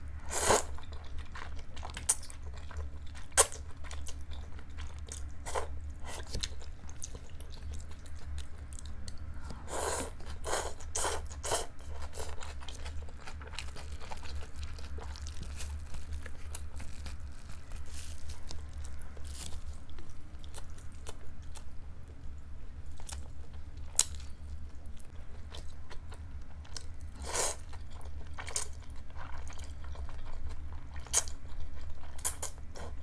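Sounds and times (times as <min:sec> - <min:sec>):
chewing and crunching noodles: 0:00.2 - 0:33.0
slurping noodles: 0:09.7 - 0:12.4.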